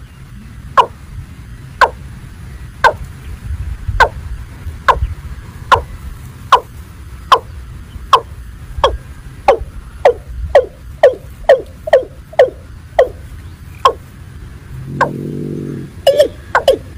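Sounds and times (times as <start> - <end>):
low wind rumble: 0.0 - 16.9
bird calling with downward notes: 7.3 - 14.1, 14.8 - 16.9.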